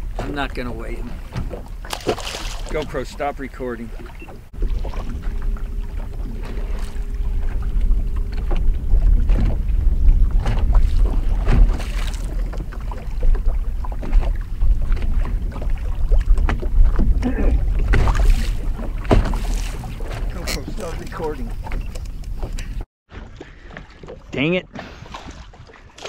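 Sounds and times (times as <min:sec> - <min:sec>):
wind buffeting microphone: 0:00.0 - 0:22.8
waves slapping boat hull: 0:00.0 - 0:26.0.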